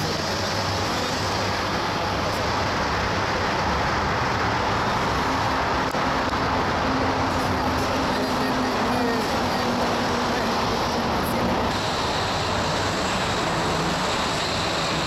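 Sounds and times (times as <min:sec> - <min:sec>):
train running: 0:00.0 - 0:15.0.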